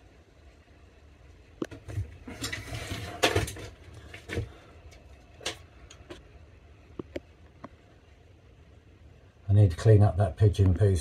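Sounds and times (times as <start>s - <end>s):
rustling and scraping: 1.6s - 6.3s
sharp clicks and knocks: 6.9s - 7.8s.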